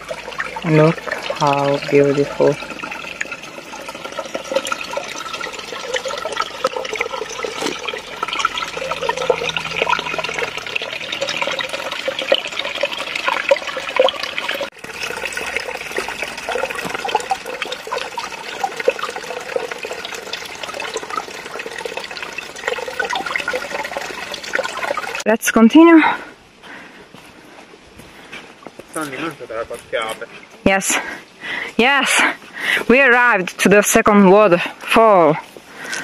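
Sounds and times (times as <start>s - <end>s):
stream splashing over stones: 0.0s - 25.3s.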